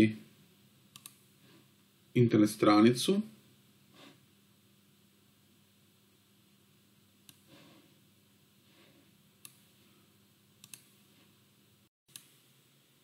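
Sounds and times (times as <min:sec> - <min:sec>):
computer mouse clicks: 0:00.9 - 0:01.2, 0:07.2 - 0:07.5, 0:09.4 - 0:09.6, 0:10.6 - 0:11.0, 0:12.1 - 0:12.4.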